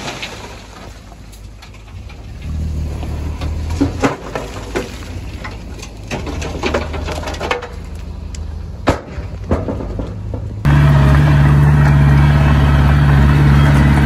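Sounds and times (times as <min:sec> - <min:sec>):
bulldozer diesel engine running: 0:01.0 - 0:14.0
metallic clanks and knocks: 0:03.3 - 0:08.0, 0:08.8 - 0:12.0.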